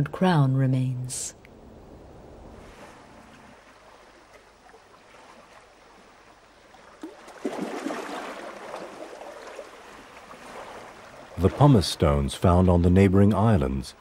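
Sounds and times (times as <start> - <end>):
seawater washing over rocks: 6.8 - 13.6.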